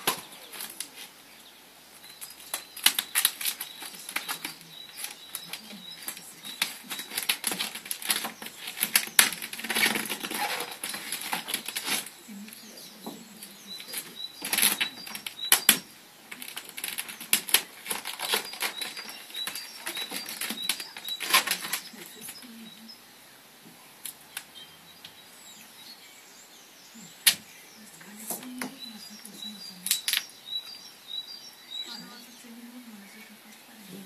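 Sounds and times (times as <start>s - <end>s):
small birds chirping: 0.0s - 34.0s
squeegee scraping vinyl film: 2.5s - 12.1s.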